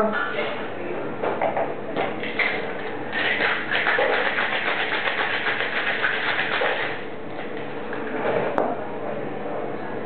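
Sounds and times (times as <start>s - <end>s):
ice rattling in cocktail shaker: 3.2s - 7.0s.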